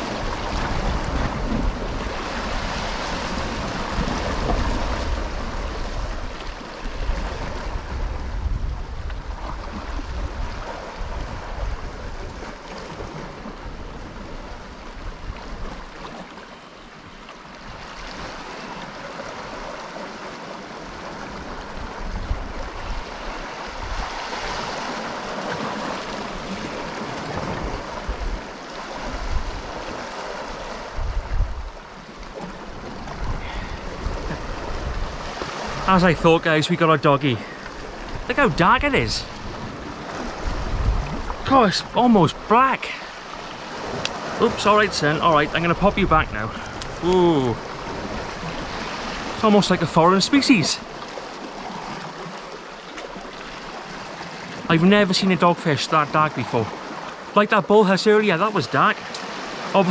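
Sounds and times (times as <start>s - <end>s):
wind buffeting microphone: 0.0s - 16.0s, 21.4s - 29.8s, 30.6s - 36.2s, 37.5s - 42.0s
waves washing against rocks: 0.0s - 16.3s, 17.6s - 59.9s.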